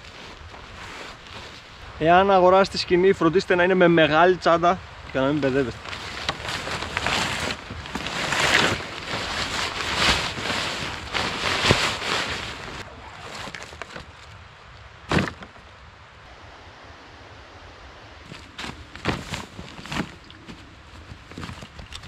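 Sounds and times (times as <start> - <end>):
fabric bags rustling: 5.2 - 14.4, 18.3 - 22.0.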